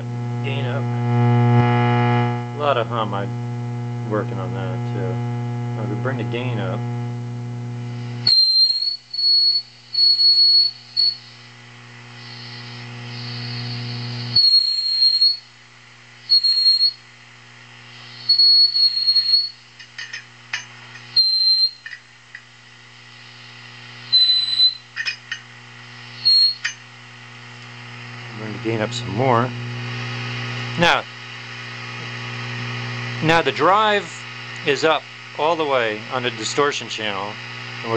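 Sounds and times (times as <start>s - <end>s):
amp feedback squealing: 0.0s - 11.4s, 12.1s - 15.5s, 16.3s - 17.0s, 18.0s - 19.7s, 21.0s - 22.0s, 23.2s - 25.2s, 25.8s - 26.8s
steady mains hum: 0.0s - 37.9s.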